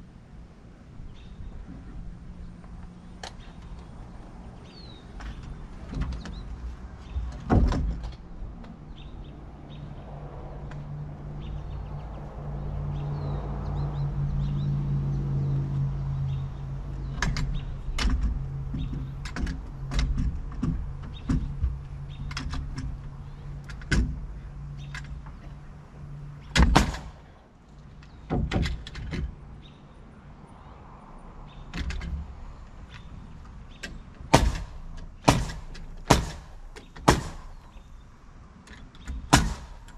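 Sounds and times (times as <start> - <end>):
nail gun firing: 26.6 - 27.2, 34.3 - 37.5, 39.3 - 39.9.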